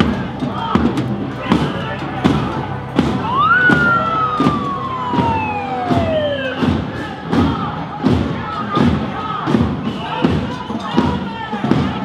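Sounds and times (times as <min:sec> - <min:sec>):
steady thumps: 0:00.0 - 0:12.0
siren-like wail: 0:03.2 - 0:07.0.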